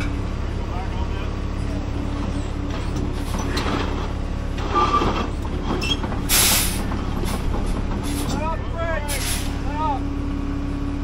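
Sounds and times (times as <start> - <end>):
diesel engines running: 0.0 - 11.0
air brake hiss: 6.3 - 6.8, 9.1 - 9.6.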